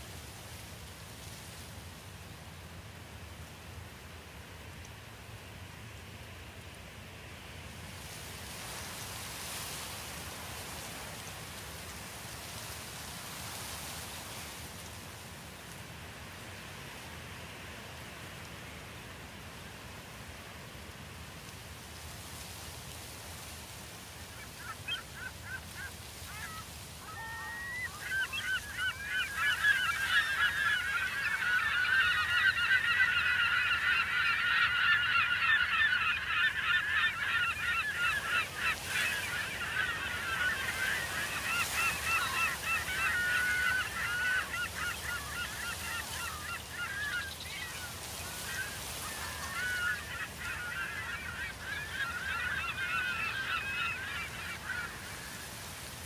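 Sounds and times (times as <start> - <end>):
flamingos honking in flight: 24.3 - 55.7.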